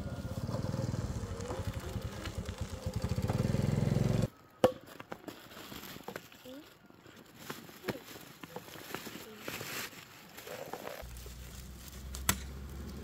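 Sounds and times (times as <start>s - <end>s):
small motorbike engine running: 0.0s - 4.3s
plastic bag rustling: 5.2s - 12.2s.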